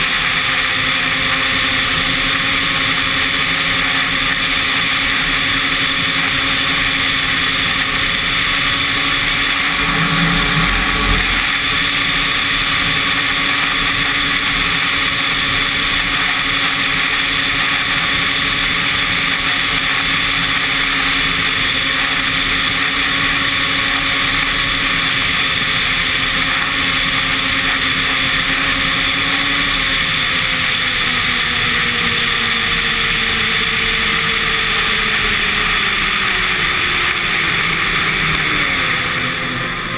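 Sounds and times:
snowmobile engine running: 0.0 - 11.8
brief low rumble: 9.1 - 11.7.

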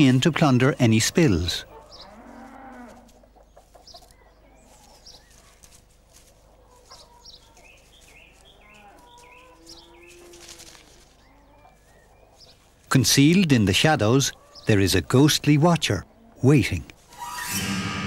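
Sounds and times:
hens clucking softly: 2.8 - 7.6.

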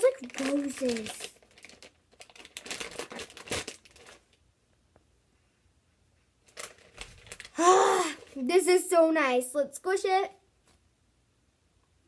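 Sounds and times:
plastic bag crinkling: 0.0 - 4.4, 6.4 - 7.6.

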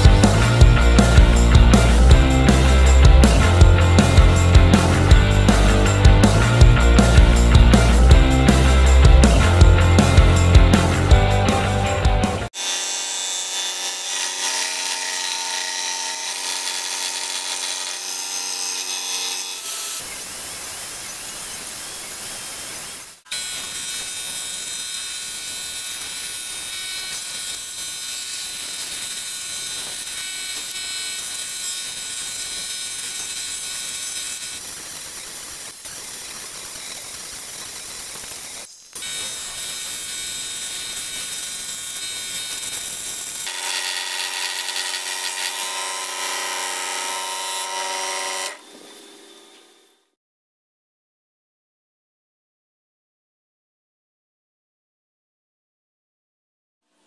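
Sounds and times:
scroll saw cutting wood: 12.5 - 50.2.

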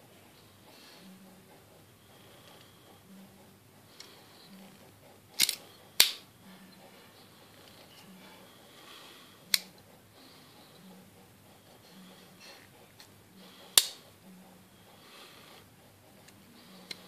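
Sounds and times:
multitool blades clicking: 5.4 - 6.2.

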